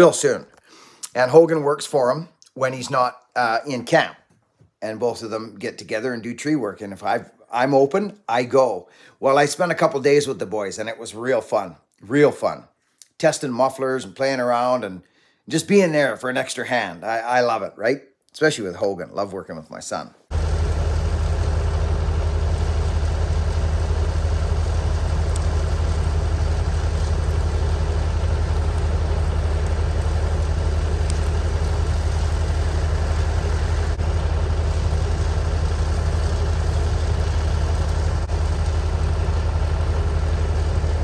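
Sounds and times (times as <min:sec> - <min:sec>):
large engine droning: 0:20.3 - 0:41.0.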